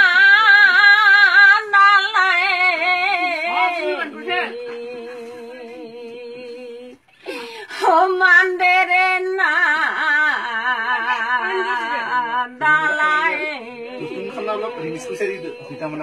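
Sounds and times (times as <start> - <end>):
elderly woman singing: 0.0 - 16.0.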